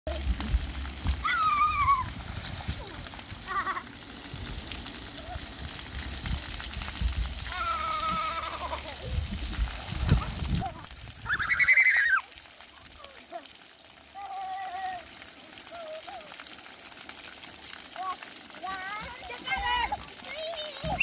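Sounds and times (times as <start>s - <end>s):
hiss of spraying water jets: 0.1s - 21.0s
children squealing: 1.2s - 2.1s, 7.5s - 9.0s, 11.2s - 12.3s.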